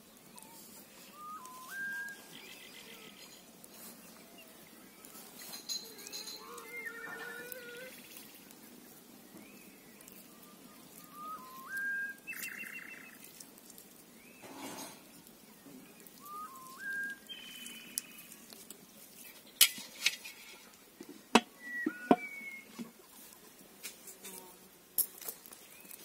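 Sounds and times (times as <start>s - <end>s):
bird singing: 0.0s - 8.5s, 9.3s - 13.4s, 14.1s - 18.5s, 21.5s - 22.8s.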